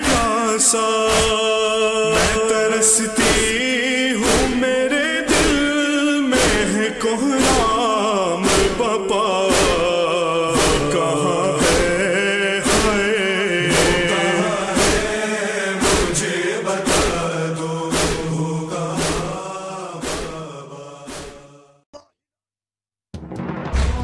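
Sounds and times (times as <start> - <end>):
sharp beat: 0.0 - 0.4, 1.1 - 1.4, 4.2 - 6.8, 7.4 - 20.4
voices chanting a lament: 0.0 - 21.8.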